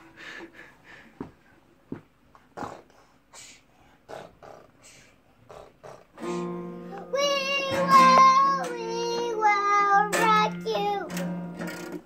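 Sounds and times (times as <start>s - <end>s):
young child singing: 6.8s - 11.4s.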